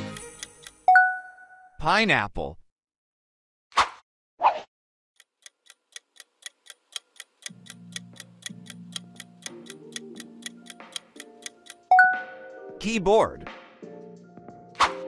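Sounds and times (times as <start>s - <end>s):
clock ticking: 0.0s - 0.9s, 5.2s - 11.9s
soft background music: 7.6s - 15.0s.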